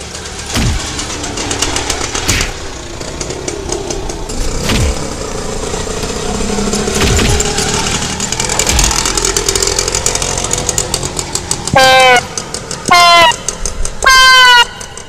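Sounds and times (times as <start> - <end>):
auto-rickshaw engine running: 0.0 - 15.0
rapid ticking rattle: 0.0 - 15.0.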